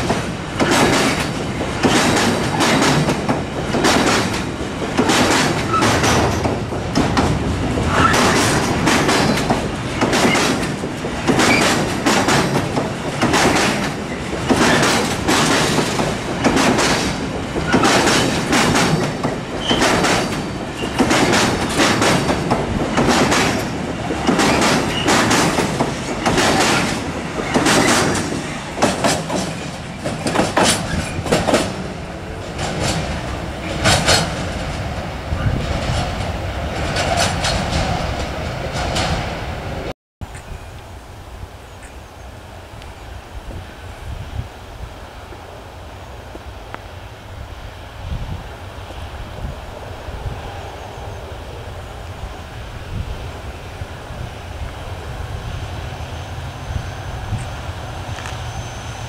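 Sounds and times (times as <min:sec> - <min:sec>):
train wheels clattering over rail joints: 0:00.0 - 0:39.5
brief wheel squeak: 0:19.6 - 0:21.0, 0:56.1 - 0:59.0.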